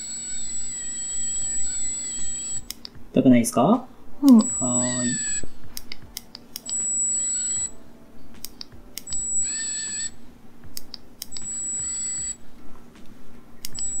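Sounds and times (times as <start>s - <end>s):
implant driver motor whine: 0.0s - 3.0s
steady high tone: 0.0s - 12.8s
sharp clicks: 2.6s - 3.0s, 5.8s - 6.8s, 8.4s - 9.6s, 10.7s - 11.5s.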